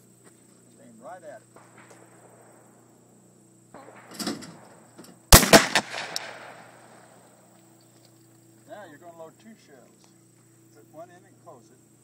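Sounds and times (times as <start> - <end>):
clay target thrower rattling: 3.8 - 6.7
shotgun blast: 3.8 - 7.2
second crack: 4.0 - 7.1.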